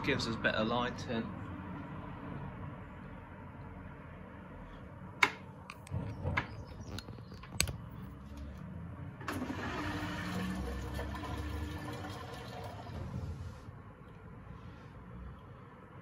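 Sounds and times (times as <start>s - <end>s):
water rushing through washing machine: 9.3s - 13.4s.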